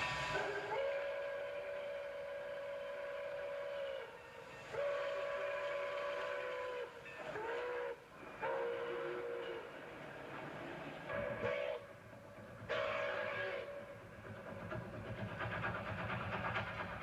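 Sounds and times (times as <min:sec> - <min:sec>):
steam locomotive whistle blasts: 0:00.0 - 0:09.9, 0:11.1 - 0:12.0, 0:12.7 - 0:14.0
train running noise: 0:00.0 - 0:17.0.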